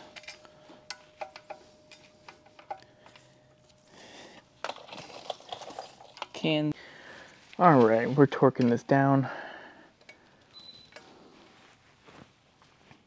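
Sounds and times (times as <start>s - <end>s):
metal tools clicking and tapping: 0.0s - 3.8s, 10.0s - 10.3s
faint steady hum: 0.0s - 7.6s.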